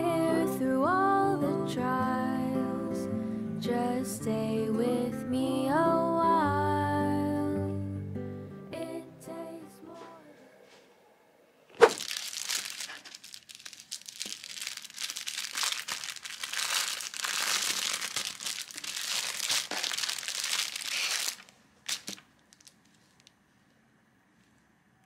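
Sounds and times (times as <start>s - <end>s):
plastic bag crinkling: 11.7s - 23.3s.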